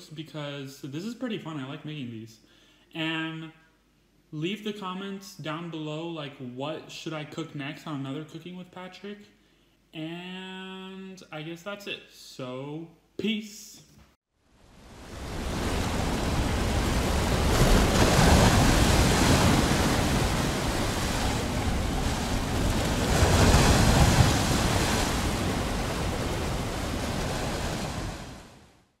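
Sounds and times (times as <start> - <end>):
surf breaking over rocks: 14.8 - 28.7.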